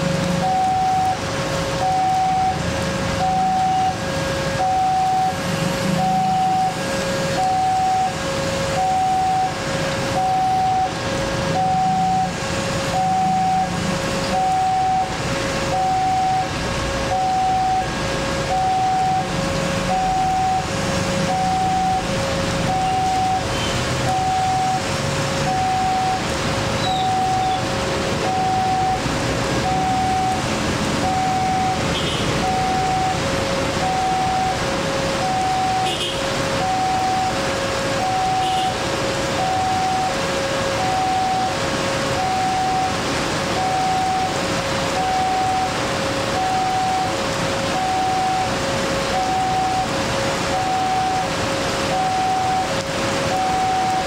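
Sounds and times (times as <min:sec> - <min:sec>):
traffic idling: 0:00.0 - 0:54.0
rain hiss: 0:19.2 - 0:54.0.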